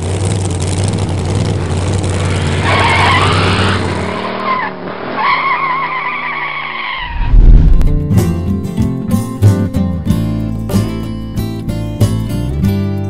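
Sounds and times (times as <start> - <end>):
car engine running: 0.0 - 5.2, 7.0 - 12.8
wavering tire squeals: 1.6 - 7.5
deep thump: 7.1 - 8.2.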